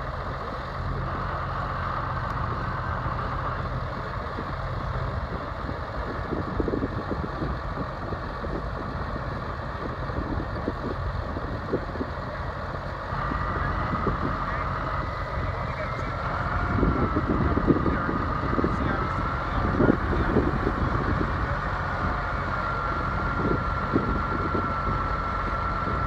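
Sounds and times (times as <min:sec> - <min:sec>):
truck engine running: 0:00.0 - 0:26.0
electric winch whine: 0:13.1 - 0:26.0.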